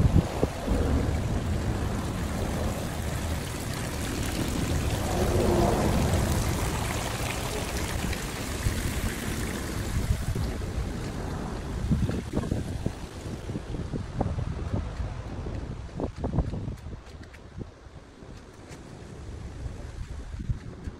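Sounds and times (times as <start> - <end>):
fountain water trickling: 0.0 - 14.8
wind buffeting microphone: 0.0 - 20.9.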